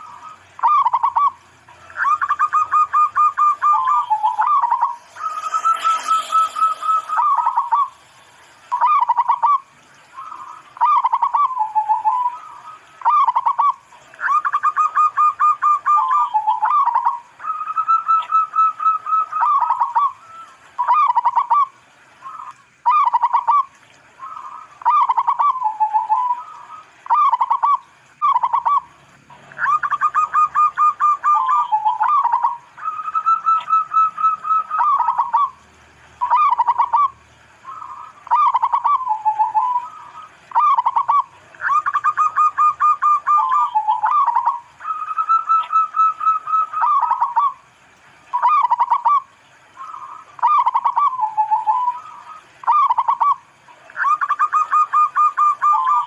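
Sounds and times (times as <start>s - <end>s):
dove cooing: 0.0s - 35.6s, 36.2s - 47.6s, 48.3s - 56.0s.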